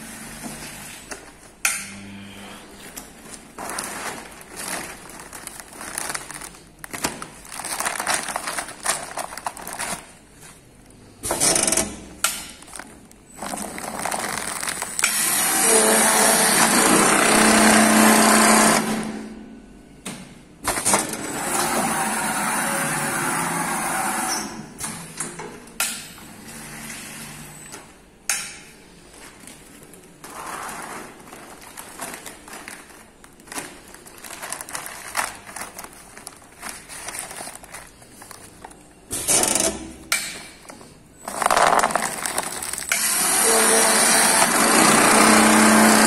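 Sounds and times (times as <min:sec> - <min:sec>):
sewing machine running: 0:13.5 - 0:19.1, 0:41.3 - 0:46.0.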